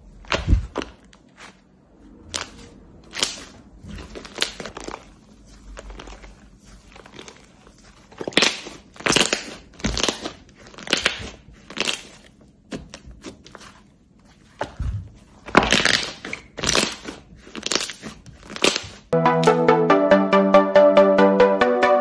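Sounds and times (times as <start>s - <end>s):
slime squished by hand: 2.2s - 13.8s, 14.4s - 19.1s.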